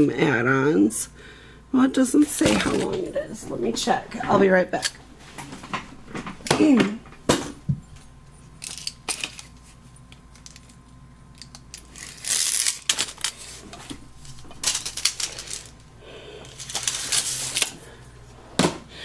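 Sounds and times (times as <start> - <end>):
small objects clicking and clinking: 8.6 - 13.4.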